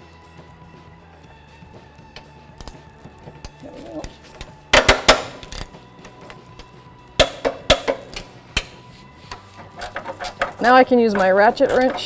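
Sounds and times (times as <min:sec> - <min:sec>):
torque wrench clicking: 0:04.8 - 0:12.0.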